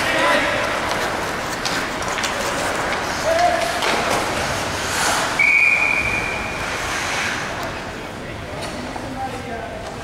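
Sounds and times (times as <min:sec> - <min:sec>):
crowd chatter: 0:00.0 - 0:05.4
sticks and puck clacking on ice: 0:00.0 - 0:05.4
referee's whistle: 0:05.4 - 0:06.5.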